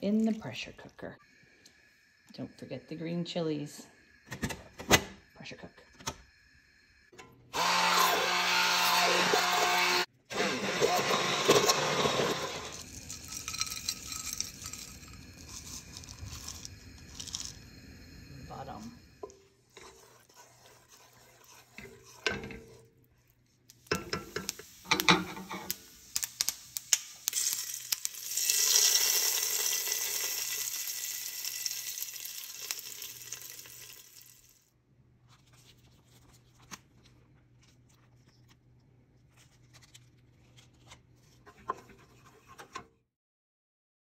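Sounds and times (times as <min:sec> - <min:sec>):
frying in hot oil sizzling: 0:11.6 - 0:17.6, 0:23.8 - 0:34.7
spatula scraping metal pot: 0:18.5 - 0:25.8.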